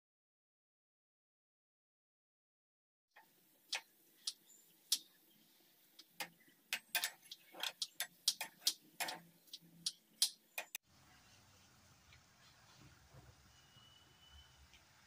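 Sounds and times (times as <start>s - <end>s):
faint steady background noise: 3.2s - 15.0s
sharp clicks and taps: 6.0s - 10.8s.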